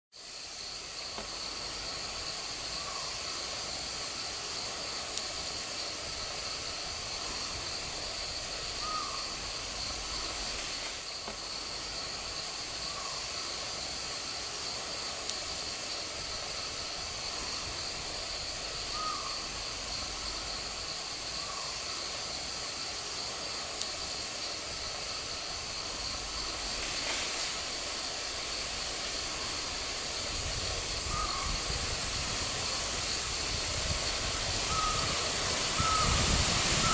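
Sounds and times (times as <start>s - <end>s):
steady high hiss: 0.2s - 36.9s
wind rumbling on microphone: 29.3s - 36.9s
short bird calls: 35.8s - 36.2s.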